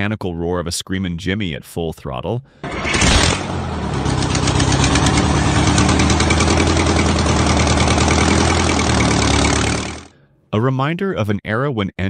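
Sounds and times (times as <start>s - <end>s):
two-stroke diesel engine running: 2.6s - 10.1s.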